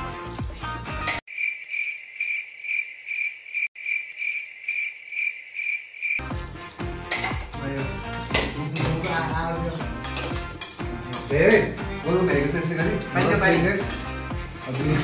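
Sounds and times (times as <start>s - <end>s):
background music: 0.0s - 1.2s, 6.2s - 15.0s
cricket chirping: 1.3s - 6.2s.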